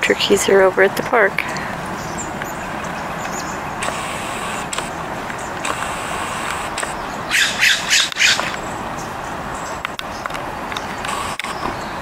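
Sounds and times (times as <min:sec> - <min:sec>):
road traffic hum: 0:00.0 - 0:12.0
crackling rustle: 0:02.4 - 0:11.8.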